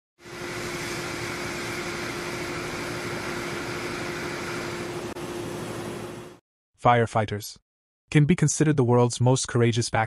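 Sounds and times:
water jet hissing: 0.2 - 6.0
pump hum: 0.2 - 6.4.

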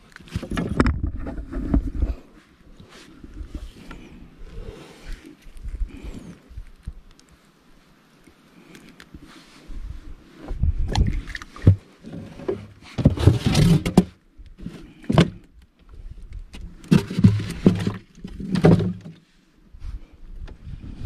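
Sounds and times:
styrofoam lid scraping and thumping: 11.6 - 14.1, 16.8 - 19.1.

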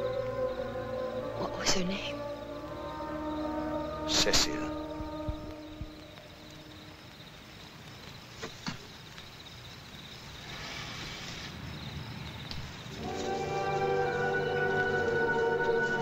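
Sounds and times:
faint crickets chirping: 0.0 - 16.0
short hiss: 10.4 - 11.6
music score: 12.9 - 16.0.

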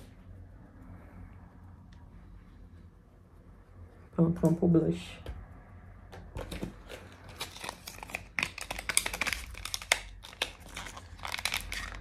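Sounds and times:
packaging crinkling and tearing: 6.4 - 12.0.

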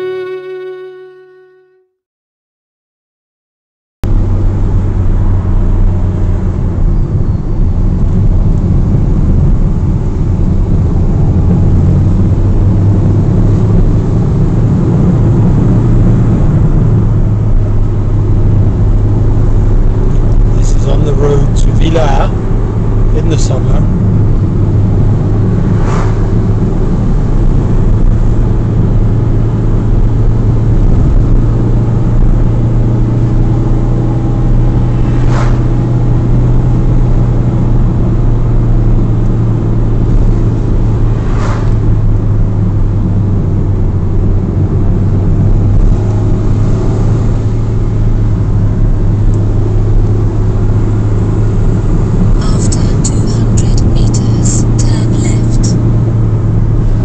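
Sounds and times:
car engine and road noise: 0.0 - 1.8, 4.0 - 57.0.

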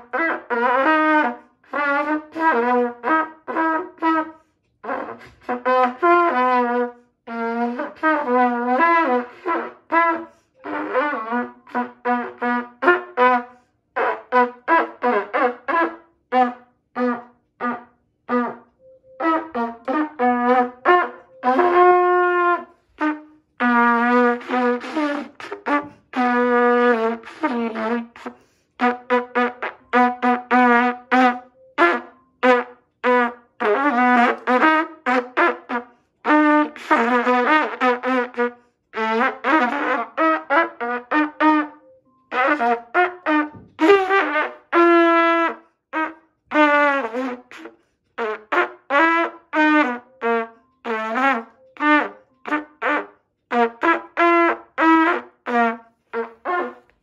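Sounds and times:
muted trumpet playing: 0.0 - 57.0.

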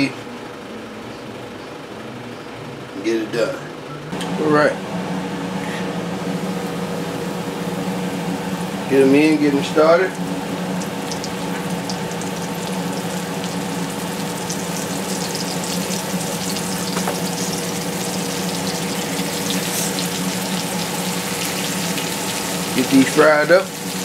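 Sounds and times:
meat sizzling in hot grease: 10.1 - 24.0.

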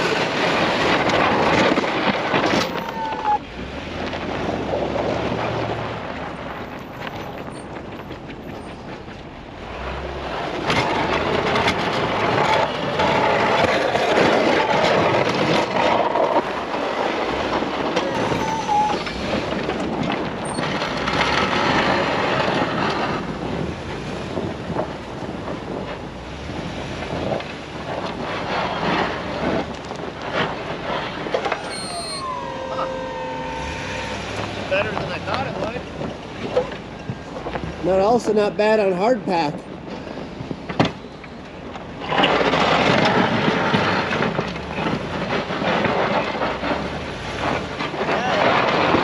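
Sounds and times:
plow blade scraping snow and ice: 0.0 - 49.0
truck engine: 0.0 - 49.0
whine falling in pitch: 31.4 - 35.2.

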